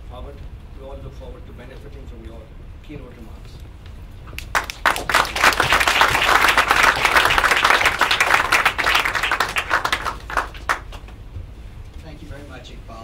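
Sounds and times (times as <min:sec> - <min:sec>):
audience applauding: 0:04.4 - 0:11.2.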